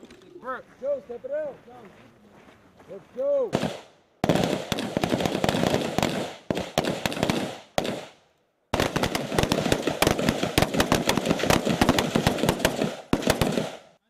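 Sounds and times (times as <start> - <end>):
rifle shots: 3.5 - 14.0.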